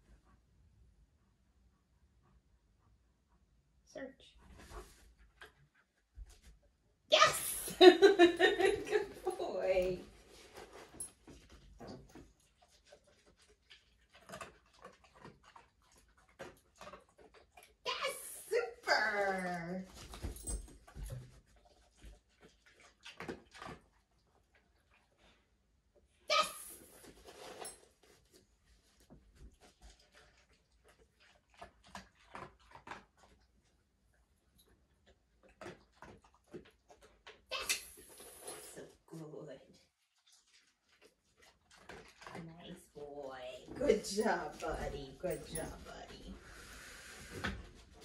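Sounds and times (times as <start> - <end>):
dog chewing treats: 10.1 - 17.8, 29.5 - 33.8, 34.6 - 38.4, 40.3 - 43.0.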